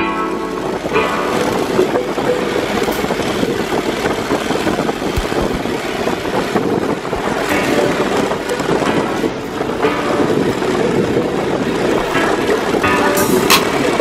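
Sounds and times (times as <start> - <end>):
buggy engine running: 0.0 - 14.0
low bumps: 0.5 - 14.0.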